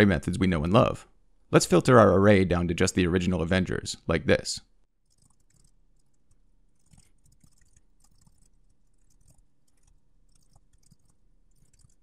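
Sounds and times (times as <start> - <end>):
keyboard typing: 5.0 - 12.0.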